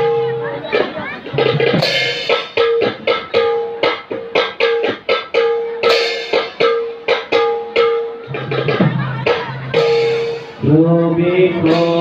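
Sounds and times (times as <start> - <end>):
barrel drum beating: 0.0 - 10.7
hand cymbals ringing: 1.8 - 8.4.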